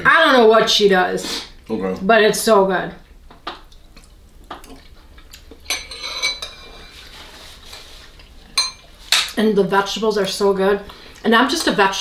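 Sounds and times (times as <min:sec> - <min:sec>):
spoons clinking against bowls: 0:05.6 - 0:06.9, 0:08.6 - 0:09.4.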